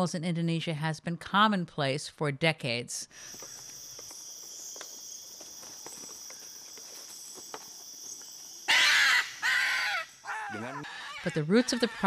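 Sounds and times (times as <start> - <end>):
insect chorus buzzing: 3.2 - 12.0
cockatoo screeching: 8.7 - 12.0.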